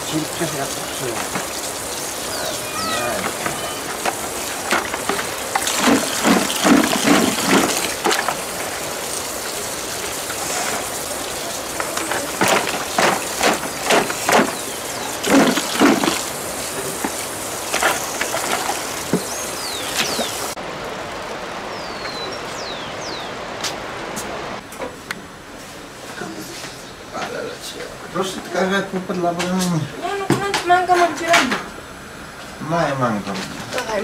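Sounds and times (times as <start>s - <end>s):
tap water running into bucket: 0.0s - 20.6s
potatoes knocking and rubbing: 2.9s - 9.0s, 11.7s - 19.4s.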